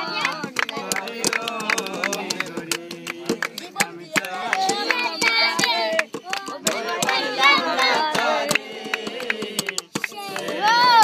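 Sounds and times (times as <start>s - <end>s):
sticks drumming on plastic bottle: 0.0s - 11.0s
young voice singing: 3.6s - 8.6s, 9.6s - 11.0s.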